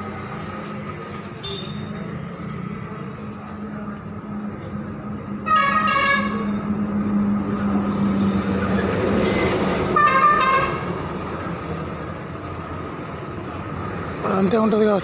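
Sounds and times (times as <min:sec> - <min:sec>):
rush of passing vehicles: 0:00.0 - 0:15.0
vehicle horn honking: 0:01.4 - 0:01.9, 0:05.5 - 0:06.5, 0:10.0 - 0:10.8.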